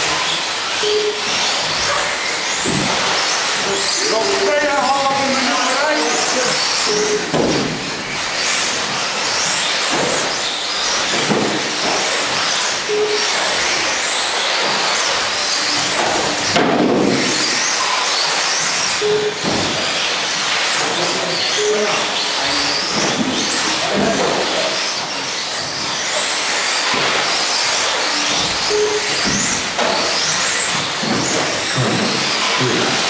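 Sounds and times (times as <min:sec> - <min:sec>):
toy car motor whine: 0:00.0 - 0:33.0
short beeps: 0:00.8 - 0:01.4, 0:06.9 - 0:07.3, 0:12.9 - 0:13.4, 0:19.0 - 0:19.4, 0:21.6 - 0:22.0, 0:28.7 - 0:29.2.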